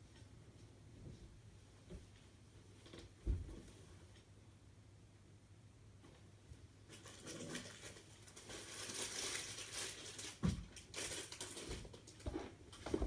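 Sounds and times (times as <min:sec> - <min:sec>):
rustling and crinkling: 0:06.8 - 0:13.0.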